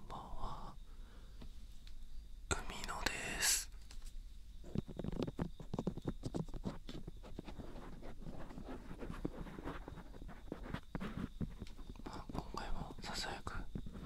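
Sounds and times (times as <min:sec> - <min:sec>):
breathy hiss: 0:00.0 - 0:01.8, 0:02.8 - 0:03.7
fingers rubbing and tapping microphone: 0:04.6 - 0:12.4, 0:13.6 - 0:14.0.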